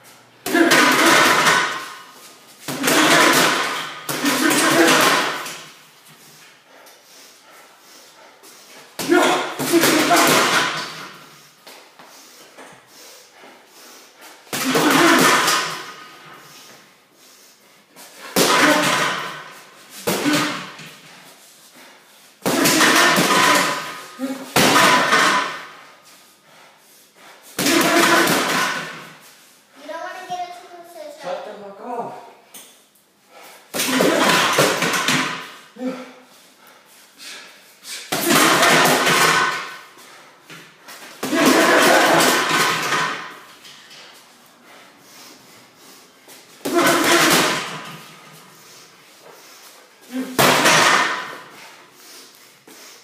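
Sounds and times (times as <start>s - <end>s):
punches on heavy bag: 0.4s - 2.0s, 2.6s - 5.7s, 9.0s - 11.2s, 14.5s - 16.1s, 18.2s - 20.9s, 22.4s - 25.8s, 27.6s - 29.2s, 33.7s - 35.7s, 38.1s - 39.8s, 41.2s - 43.5s, 46.6s - 48.1s, 50.1s - 51.6s.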